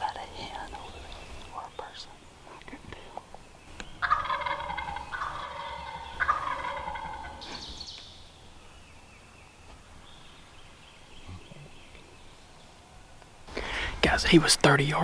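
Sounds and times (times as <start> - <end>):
turkey gobbling: 4.0 - 7.8.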